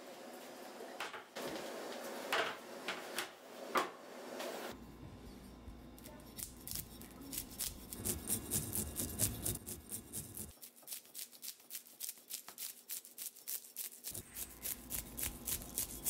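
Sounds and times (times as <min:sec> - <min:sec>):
fish scaler scraping scales: 0:06.3 - 0:16.0.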